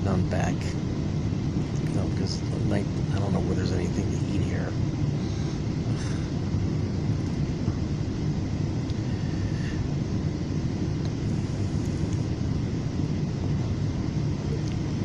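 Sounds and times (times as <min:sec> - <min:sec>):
train coach rumbling: 0:01.5 - 0:08.1.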